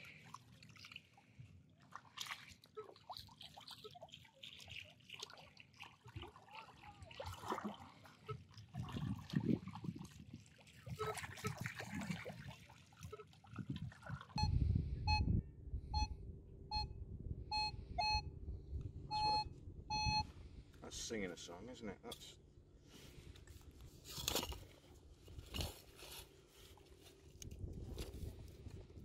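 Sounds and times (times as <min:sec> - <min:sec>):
water splashing and trickling: 0:00.0 - 0:14.4
metal detector short beeps: 0:14.4 - 0:18.3, 0:19.1 - 0:20.3
low rumble: 0:14.4 - 0:20.7.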